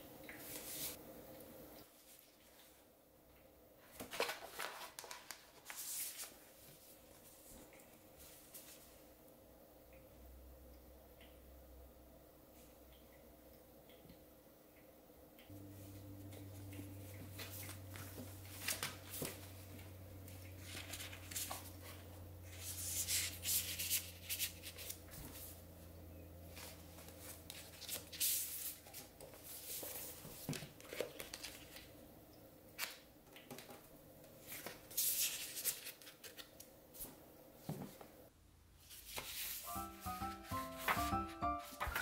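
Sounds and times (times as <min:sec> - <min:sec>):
paper and plastic rustling: 0:03.8 - 0:09.0, 0:17.3 - 0:19.9, 0:20.6 - 0:25.6, 0:26.5 - 0:31.9, 0:38.9 - 0:42.0
low steady hum: 0:05.6 - 0:34.7.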